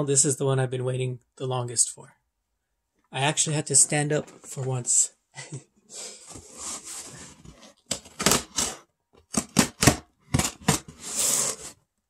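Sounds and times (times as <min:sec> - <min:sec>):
packing tape tearing from cardboard: 0:07.9 - 0:11.8.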